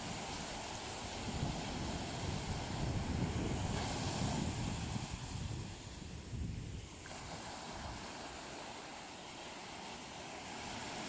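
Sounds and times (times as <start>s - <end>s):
small waves breaking on sand: 0.0s - 11.0s.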